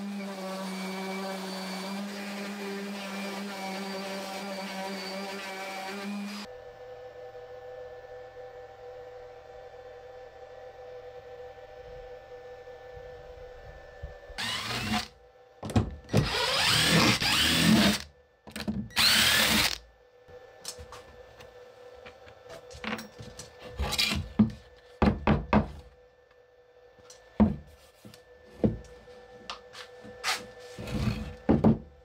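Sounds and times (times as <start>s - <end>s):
cordless impact driver whirring: 14.4s - 15.1s, 16.1s - 18.1s, 18.9s - 19.8s.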